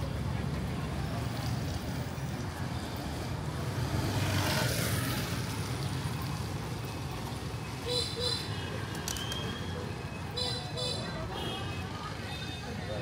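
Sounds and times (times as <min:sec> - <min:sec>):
low traffic rumble: 0:00.0 - 0:13.0
scooters passing on wet road: 0:03.4 - 0:07.4.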